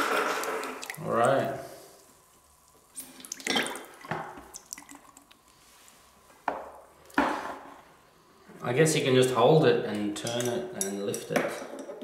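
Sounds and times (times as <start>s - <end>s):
water splashing into plastic bucket: 3.0s - 5.2s.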